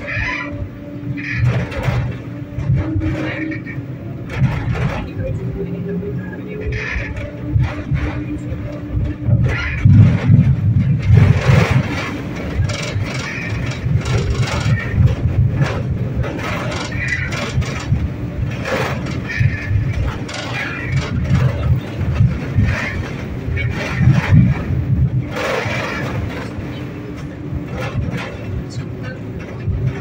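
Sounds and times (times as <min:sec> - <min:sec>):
tram rumbling along track: 0:00.0 - 0:30.0
clicks and rattles: 0:06.7 - 0:30.0.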